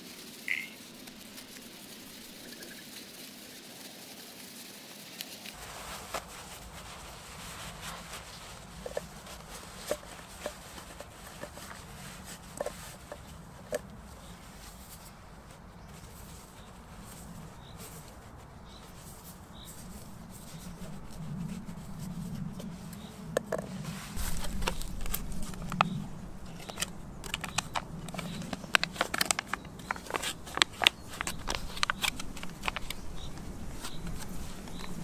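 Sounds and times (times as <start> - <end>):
tissue paper and foil rustling: 0.0 - 23.0, 23.8 - 35.0
quick sharp crackles: 23.8 - 35.0.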